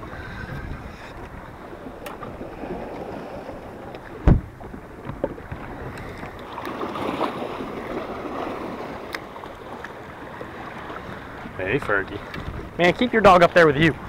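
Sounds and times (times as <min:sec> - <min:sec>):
water lapping: 0:00.0 - 0:14.0
wind: 0:00.0 - 0:14.0
knock on boat: 0:04.2 - 0:05.4.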